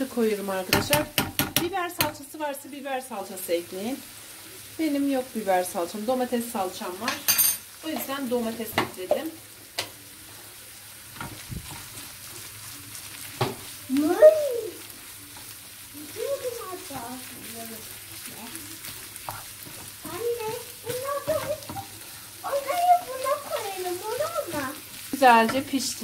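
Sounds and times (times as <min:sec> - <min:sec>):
meat sizzling in a frying pan: 0:00.0 - 0:26.0
spoon knocking on pan: 0:00.7 - 0:02.3, 0:07.0 - 0:10.0, 0:13.4 - 0:13.7, 0:18.8 - 0:22.0, 0:25.4 - 0:25.8
wooden spoon scraping a pan: 0:16.4 - 0:26.0.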